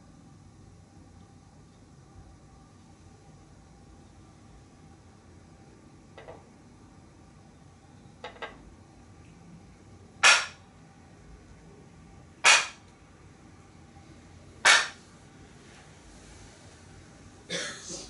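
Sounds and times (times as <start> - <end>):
sharp wooden claps: 10.2 - 10.6, 12.4 - 12.8, 14.7 - 15.0.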